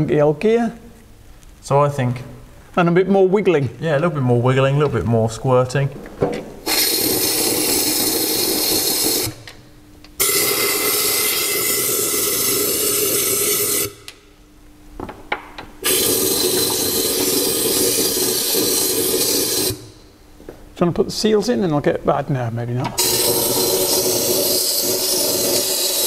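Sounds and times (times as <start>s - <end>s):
spray gun hissing: 6.6s - 9.4s, 15.8s - 20.0s, 23.0s - 26.0s.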